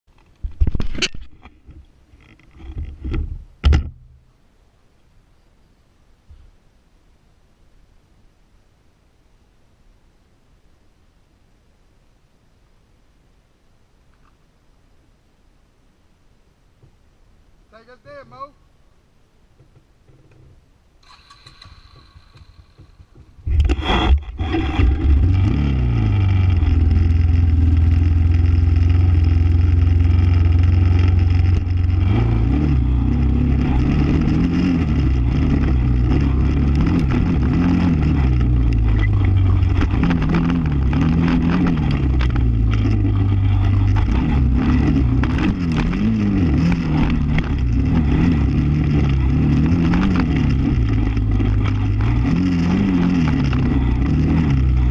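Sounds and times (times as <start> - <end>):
atv engine revving: 21.0 - 54.9.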